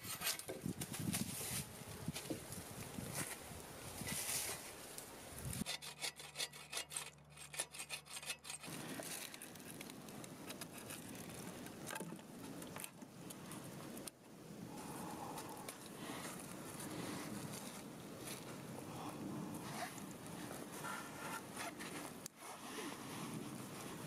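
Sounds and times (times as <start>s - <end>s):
rustling and handling noise: 0.0s - 5.7s, 8.3s - 14.2s, 15.2s - 24.0s
hand tool rasping wood: 5.6s - 8.8s.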